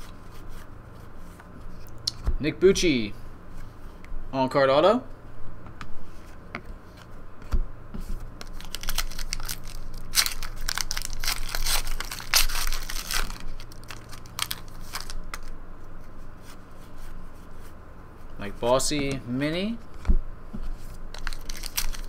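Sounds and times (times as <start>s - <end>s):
foil wrapper tearing and crinkling: 8.4s - 15.5s, 21.1s - 22.0s.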